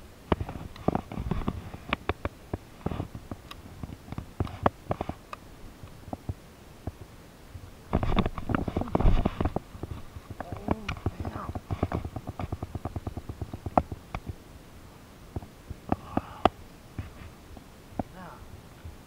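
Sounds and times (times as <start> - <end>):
rustling: 7.9 - 14.4, 15.3 - 19.0.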